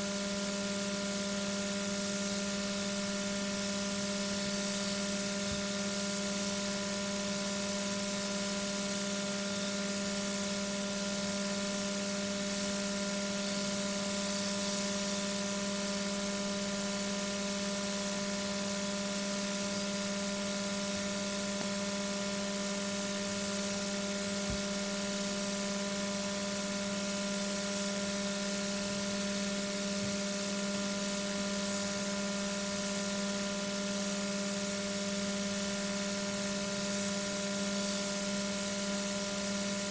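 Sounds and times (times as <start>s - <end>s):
electrical hum: 10.9s - 39.9s.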